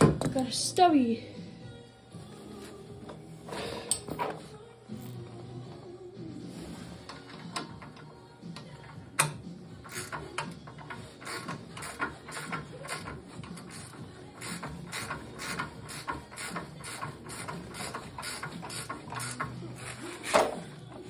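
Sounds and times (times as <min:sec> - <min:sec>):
ratcheting wrench clicking: 0:07.1 - 0:20.7.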